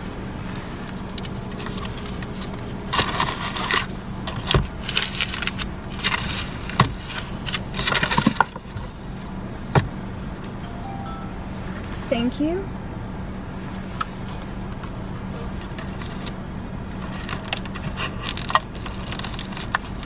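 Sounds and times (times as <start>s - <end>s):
car idling hum: 0.0s - 20.0s
paper bag rustling and crinkling: 1.5s - 8.7s, 17.0s - 20.0s.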